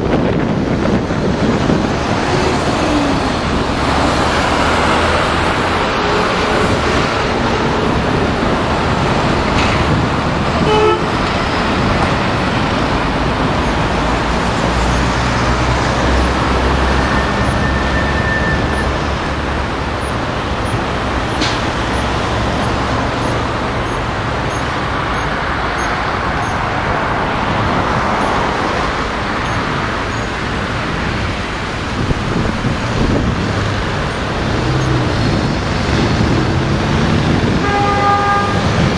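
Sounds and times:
road and traffic noise: 0:00.0 - 0:38.9
car horn toot: 0:10.6 - 0:11.2, 0:37.6 - 0:38.7.

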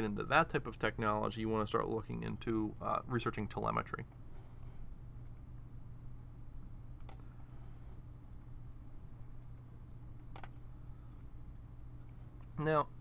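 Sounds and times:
steady low hum: 0:00.0 - 0:13.0
faint computer clicks: 0:08.3 - 0:11.3.

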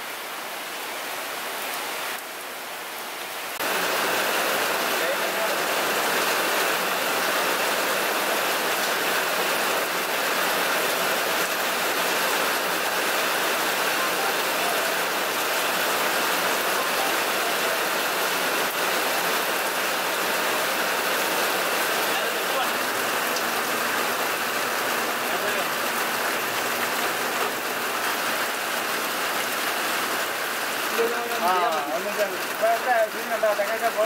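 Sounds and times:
rain on pond water: 0:00.0 - 0:34.0.

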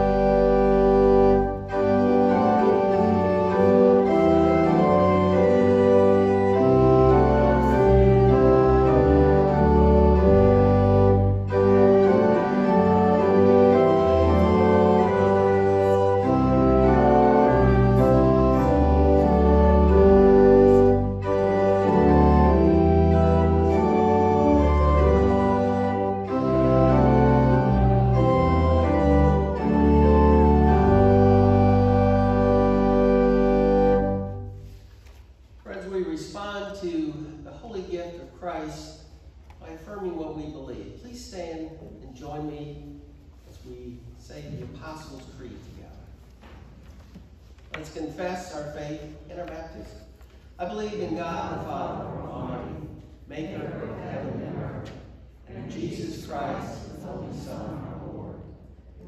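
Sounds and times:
church organ chords: 0:00.0 - 0:35.0, 0:48.1 - 0:59.0.

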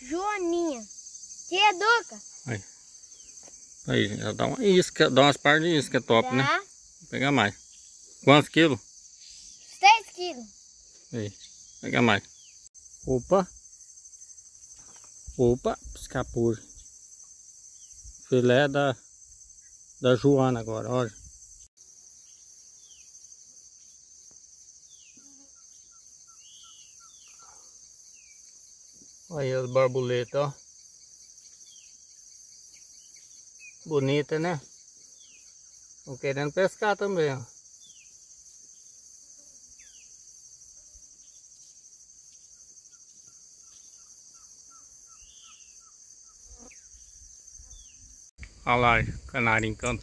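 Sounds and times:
birds chirping: 0:00.0 - 0:23.2, 0:24.8 - 0:28.6, 0:41.2 - 0:50.0
high-pitched insect drone: 0:00.0 - 0:50.0
bird calls: 0:25.0 - 0:28.5, 0:42.4 - 0:48.1.

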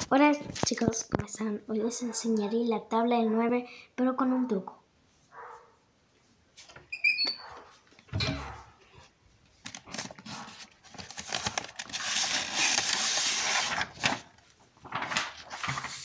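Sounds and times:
high squeak: 0:06.9 - 0:07.5
paper rustling: 0:09.5 - 0:16.0.

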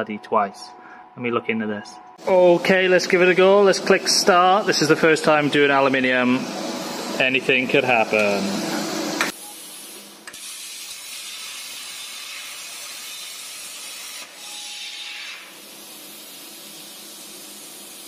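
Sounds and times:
plasma cutter arc hissing: 0:09.2 - 0:18.0
plasma torch click: 0:10.2 - 0:13.3.

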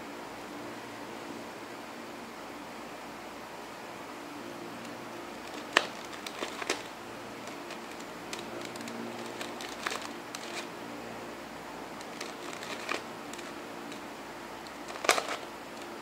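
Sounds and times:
steady hiss: 0:00.0 - 0:16.0
puzzle cube clicking: 0:04.8 - 0:10.7, 0:12.0 - 0:14.0, 0:14.6 - 0:16.0.

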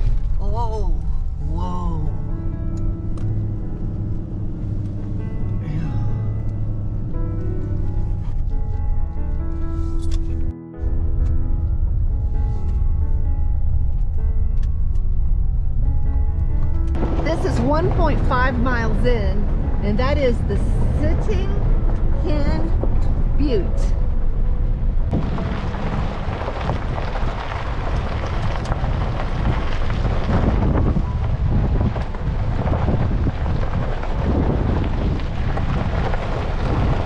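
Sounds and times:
pickup truck driving rumble: 0:00.0 - 0:37.0
background music with held notes: 0:01.4 - 0:25.1
wind noise on microphone: 0:02.3 - 0:37.0.

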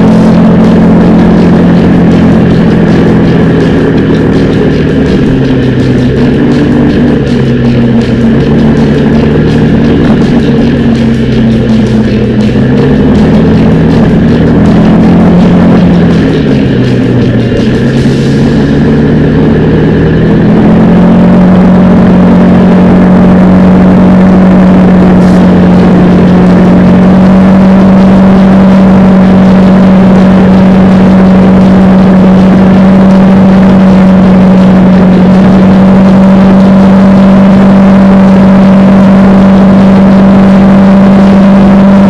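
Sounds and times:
atv engine droning: 0:00.0 - 0:42.0.

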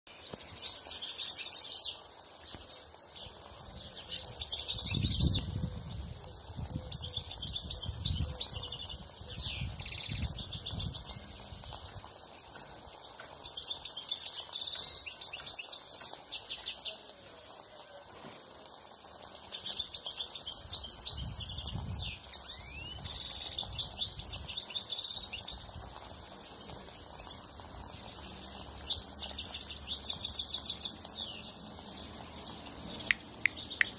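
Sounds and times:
finch singing tinkling twitters: 0:00.2 - 0:02.0, 0:06.7 - 0:11.8, 0:13.4 - 0:17.1, 0:19.5 - 0:25.8, 0:27.2 - 0:33.9.

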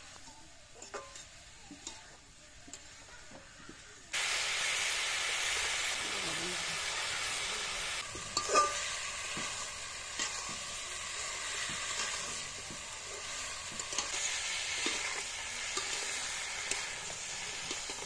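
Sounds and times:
chicken sizzling in a wok: 0:00.0 - 0:18.0
metal spatula scraping a pan: 0:08.0 - 0:18.0.

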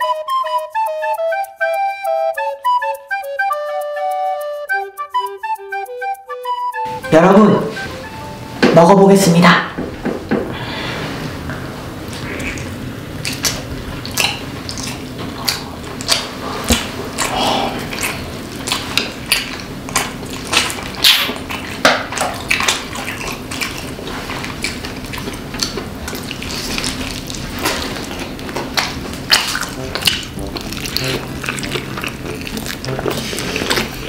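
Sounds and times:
people chewing chicken wetly: 0:12.1 - 0:34.0.

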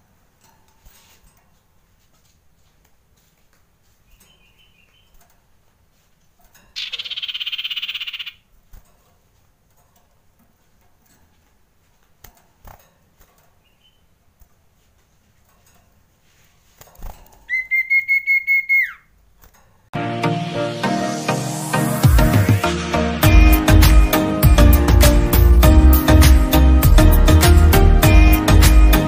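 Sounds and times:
bird pulsed whistle: 0:17.5 - 0:19.1.

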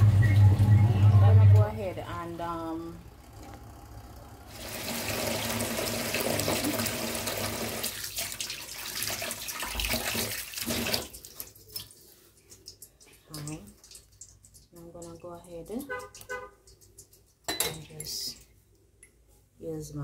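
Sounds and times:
tap water splashing into sink: 0:04.8 - 0:18.0.

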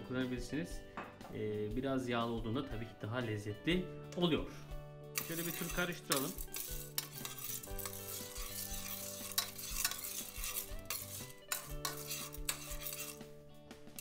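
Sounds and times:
popcorn kernels rattling in pot: 0:05.2 - 0:13.2
metal spoon scraping pot bottom: 0:05.2 - 0:13.3.

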